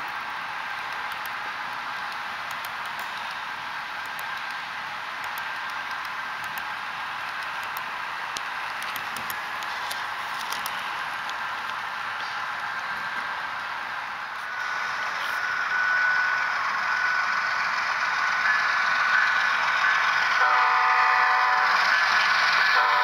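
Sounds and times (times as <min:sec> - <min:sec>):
wheels clicking on rails: 0:00.0 - 0:20.5, 0:21.6 - 0:23.0
model train rolling hiss: 0:11.4 - 0:23.0.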